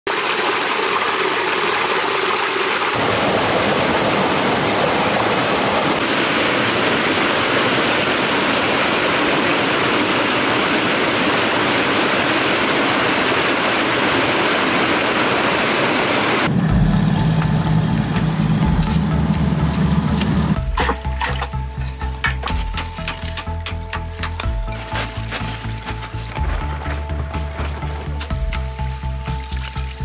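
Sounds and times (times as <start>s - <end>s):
water rushing and splashing: 0.1s - 16.5s, 24.1s - 30.0s.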